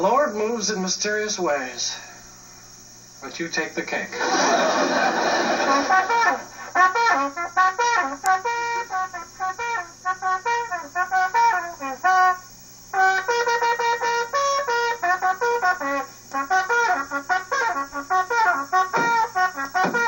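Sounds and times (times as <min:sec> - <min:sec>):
lively trumpet-led brass music: 0:05.0 - 0:20.0.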